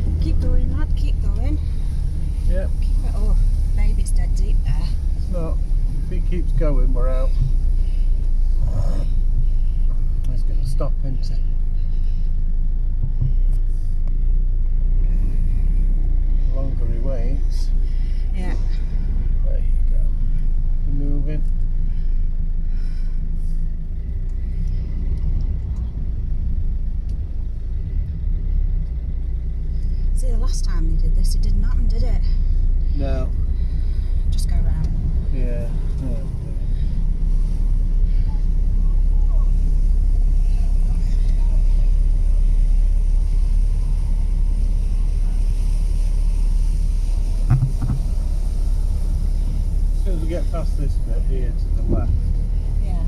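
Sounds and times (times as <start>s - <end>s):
car driving through floodwater: 0.0s - 53.0s
brief knocks: 47.5s - 48.2s.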